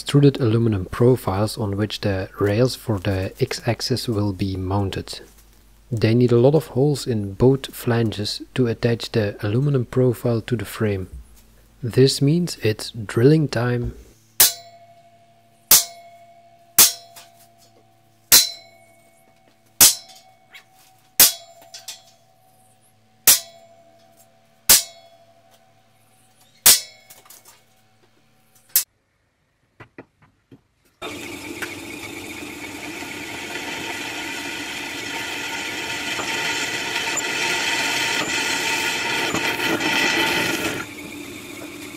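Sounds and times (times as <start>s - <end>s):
hammer striking punch on steel: 14.4s - 14.9s, 15.7s - 16.2s, 16.8s - 17.4s, 18.3s - 18.9s, 19.8s - 20.4s, 21.2s - 22.0s, 23.3s - 23.8s, 24.7s - 25.3s, 26.6s - 27.2s
drill cutting into steel: 31.0s - 41.9s.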